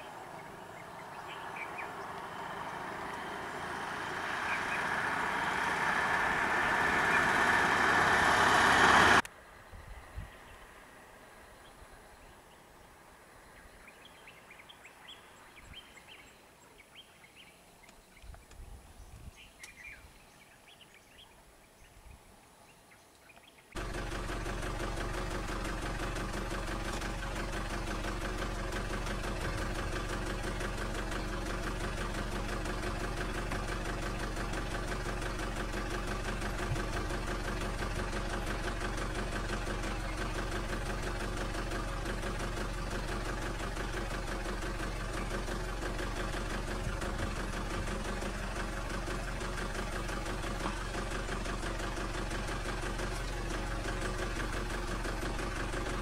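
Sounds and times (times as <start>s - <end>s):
vehicle engine idling: 0.0s - 9.3s, 23.8s - 56.0s.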